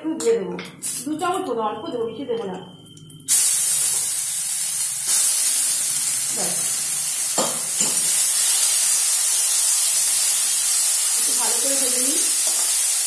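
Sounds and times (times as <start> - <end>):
onions sizzling in hot oil: 0.8 - 1.4, 3.2 - 13.0.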